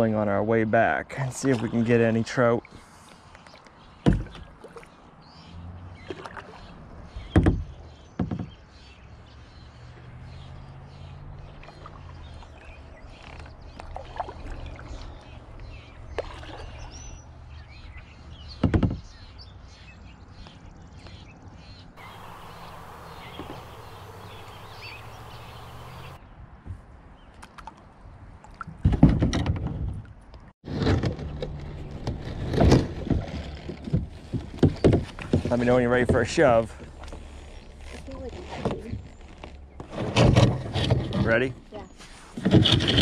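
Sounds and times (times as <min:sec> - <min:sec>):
paddle stroking through water: 0:11.4 - 0:17.2, 0:22.0 - 0:26.2, 0:31.6 - 0:41.2.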